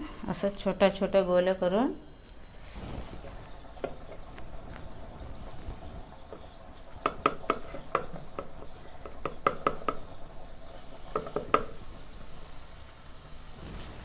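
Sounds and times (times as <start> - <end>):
fingers patting dough: 3.2 - 12.0.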